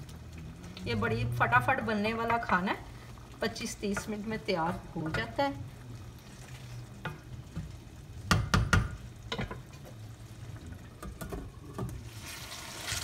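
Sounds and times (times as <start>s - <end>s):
meat sizzling in oil: 0.0s - 10.4s, 11.5s - 13.0s
spoon knocking against pan: 8.3s - 9.6s.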